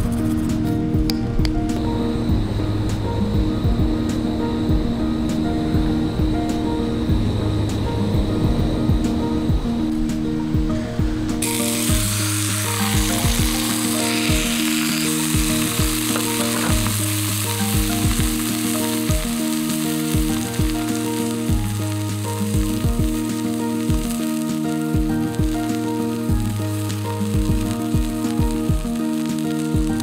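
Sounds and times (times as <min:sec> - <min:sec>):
background music with steady beat: 0:00.0 - 0:30.0
steak sizzling in skillet: 0:11.4 - 0:30.0.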